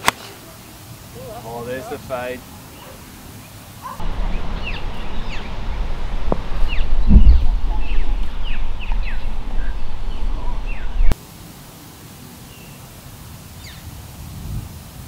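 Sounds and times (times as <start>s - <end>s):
birds chirping: 0.2s - 11.2s
wind rumble on microphone: 4.0s - 11.2s, 14.1s - 15.0s.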